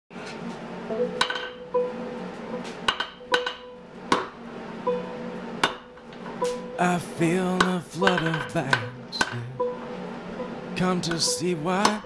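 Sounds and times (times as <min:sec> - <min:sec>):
quiet background music: 0:00.8 - 0:12.0
hammer striking anvil: 0:01.2 - 0:01.7, 0:02.9 - 0:04.3, 0:05.6 - 0:06.7, 0:07.6 - 0:09.4.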